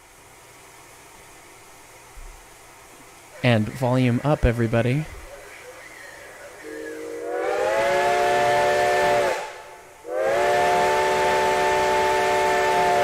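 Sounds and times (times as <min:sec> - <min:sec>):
steam whistle blasts: 0:06.6 - 0:13.0.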